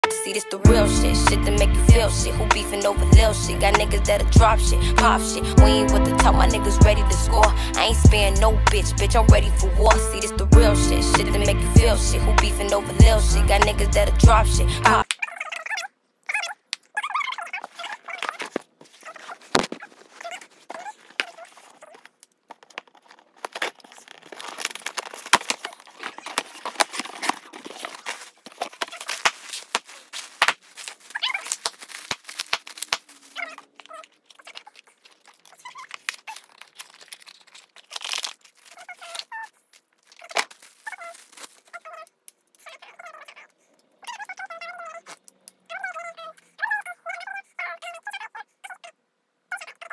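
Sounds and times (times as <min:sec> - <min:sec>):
plastic packaging crinkling: 0:16.5 - 0:45.6.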